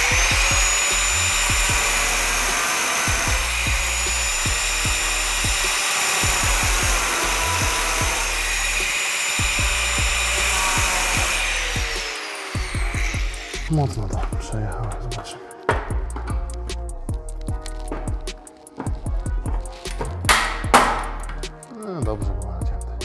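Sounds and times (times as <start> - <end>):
angle grinder cutting steel: 0.0 - 13.8.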